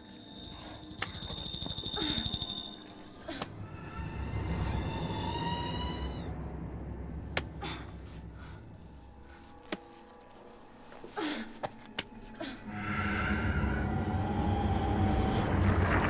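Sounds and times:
faint eerie rising tone: 12.7s - 16.0s.

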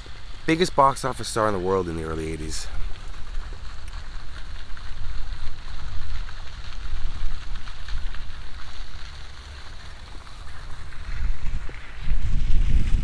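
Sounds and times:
crackling hiss: 0.0s - 13.0s
wind buffeting microphone: 10.0s - 13.0s.

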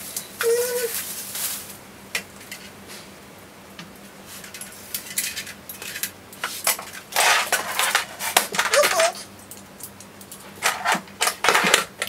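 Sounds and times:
plastic wrapping crinkling: 0.4s - 1.8s.

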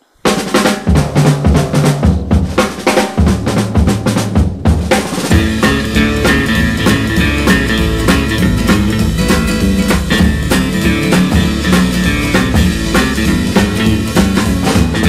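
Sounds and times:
drum kit beat: 0.0s - 15.0s
pitched instruments: 5.1s - 15.0s.

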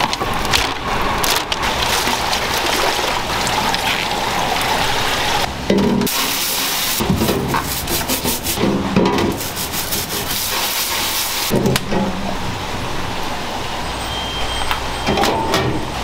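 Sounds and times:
brush scrubbing a crab shell: 6.4s - 11.5s.

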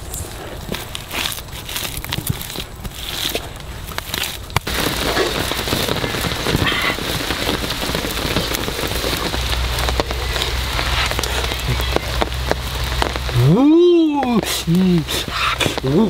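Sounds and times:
fire crackling: 0.0s - 16.0s
water bubbling at a rolling boil: 3.5s - 16.0s.

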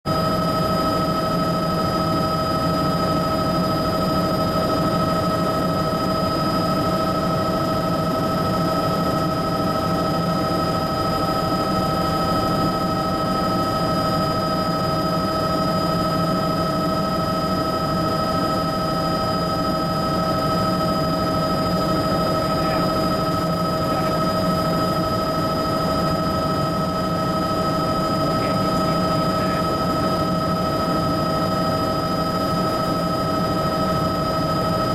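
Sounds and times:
helicopter turbine whine: 0.1s - 34.9s
rotor and airframe rumble: 19.2s - 34.8s.

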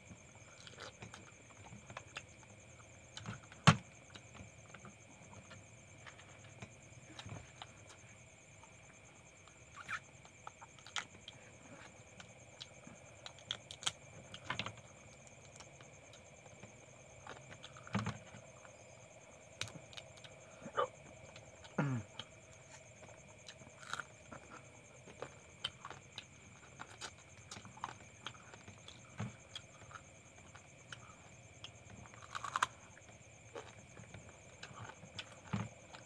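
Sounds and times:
chewing: 19.6s - 36.0s.

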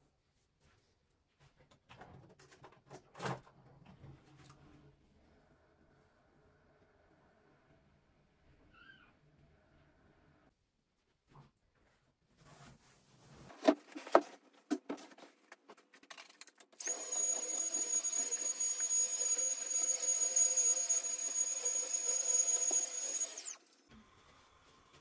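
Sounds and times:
small electric motor whining: 16.8s - 23.8s.

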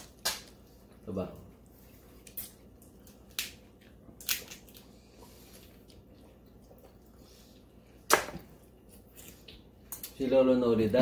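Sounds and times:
wet squishing eating sounds: 0.0s - 10.2s
crab shell cracking: 2.2s - 3.6s, 4.2s - 4.8s.

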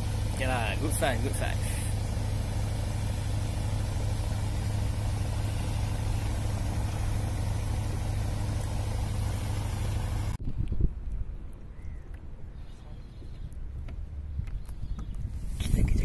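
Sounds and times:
boat engine idling: 0.0s - 10.4s.

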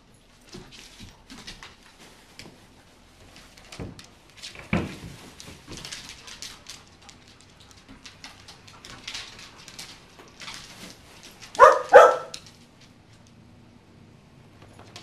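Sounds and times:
dog claws clicking on wood: 5.4s - 13.4s
dog barking: 11.6s - 12.4s.

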